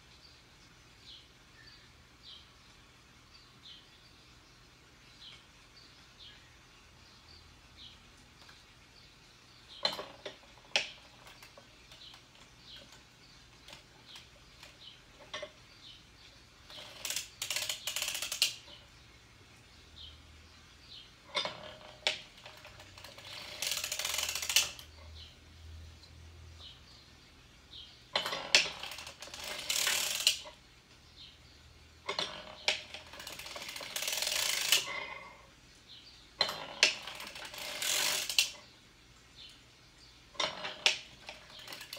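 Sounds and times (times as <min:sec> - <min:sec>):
knitting machine needles clattering: 0:09.8 - 0:15.6, 0:16.6 - 0:18.8, 0:21.3 - 0:25.1, 0:28.1 - 0:30.6, 0:32.0 - 0:35.4, 0:36.4 - 0:38.6, 0:40.4 - 0:41.9.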